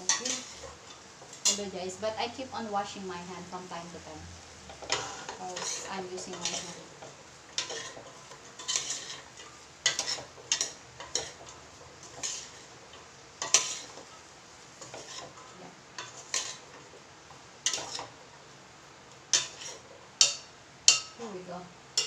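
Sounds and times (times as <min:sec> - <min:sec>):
spatula scraping a metal pan: 0:00.0 - 0:01.7, 0:04.7 - 0:12.8, 0:13.4 - 0:16.9, 0:17.6 - 0:18.2, 0:19.3 - 0:21.0.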